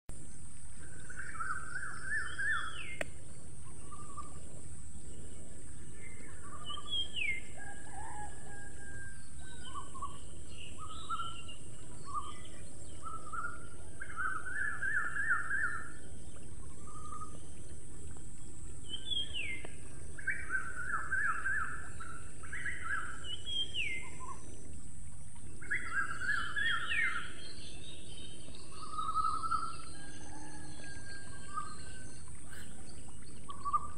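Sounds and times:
outdoor ambience hiss: 0:00.1 - 0:33.9
birds trilling: 0:25.4 - 0:33.9.

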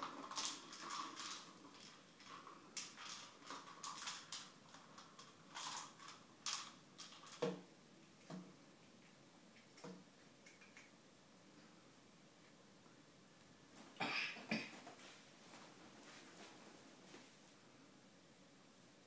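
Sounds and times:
plastic ball rattling on tiles: 0:00.0 - 0:07.7.

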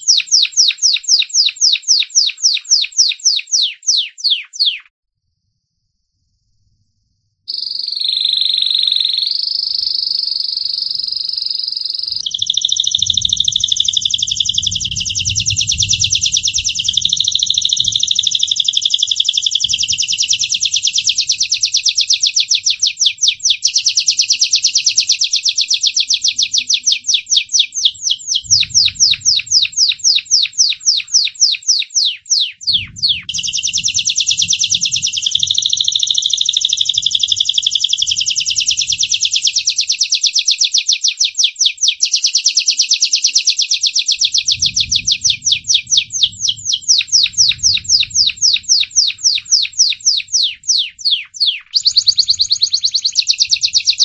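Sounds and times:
canary singing with trills: 0:00.0 - 0:04.9, 0:07.5 - 0:54.0.

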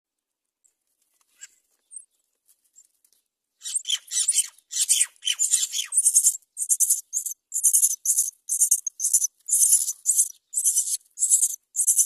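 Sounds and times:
bird nestlings chirping: 0:03.6 - 0:12.0
harsh hissy begging calls: 0:04.8 - 0:12.0.

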